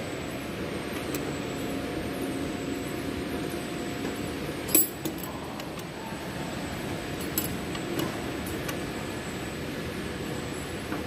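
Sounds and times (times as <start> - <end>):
workshop hum: 0.0 - 11.0
allen key clinking on metal: 4.7 - 5.4, 7.2 - 7.7.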